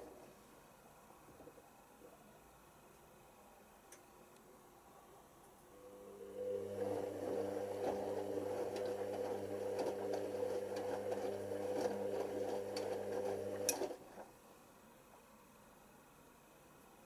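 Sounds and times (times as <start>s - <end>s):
washing machine motor hum: 5.8s - 14.4s.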